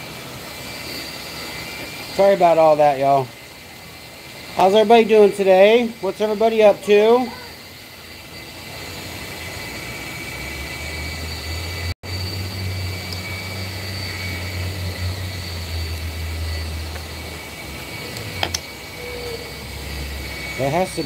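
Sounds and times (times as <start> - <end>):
faint high whine: 0.0 - 21.0
low mechanical rumble: 7.3 - 21.0.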